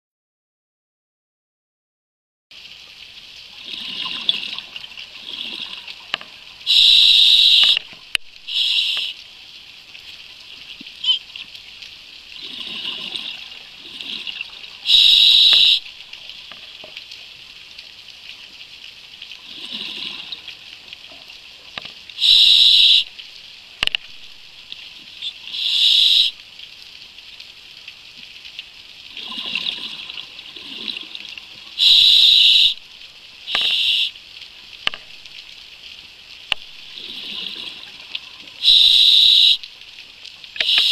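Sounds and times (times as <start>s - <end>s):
exhaled bubbles bursting: 3.6s - 6.1s, 12.4s - 15.9s, 29.1s - 31.3s, 36.8s - 38.2s
regulator breathing hiss: 6.7s - 7.8s, 8.5s - 9.2s, 14.8s - 15.9s, 22.2s - 23.1s, 25.2s - 26.4s, 31.8s - 32.8s, 33.4s - 34.2s, 38.6s - 39.6s, 40.6s - 40.9s.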